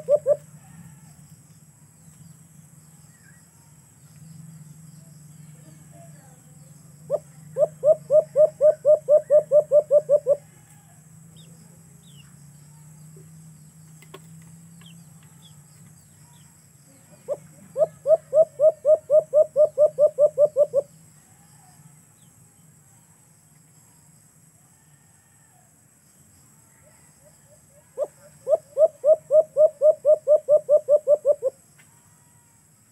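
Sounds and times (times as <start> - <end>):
dove hooting: 0.0 - 1.0, 7.0 - 10.5, 17.2 - 20.9, 28.0 - 31.6.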